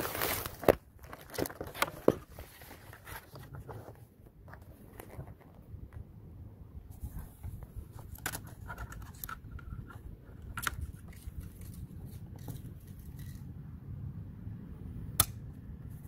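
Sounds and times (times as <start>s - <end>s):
steady low rumble: 4.1s - 16.0s.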